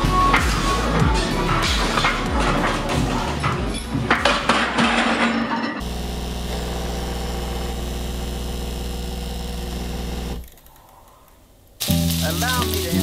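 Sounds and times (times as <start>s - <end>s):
espresso machine pump buzzing: 5.8s - 10.4s.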